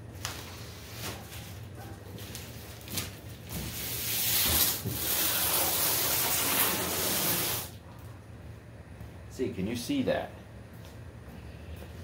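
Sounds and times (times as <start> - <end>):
cardboard box scraping on concrete: 3.6 - 7.7.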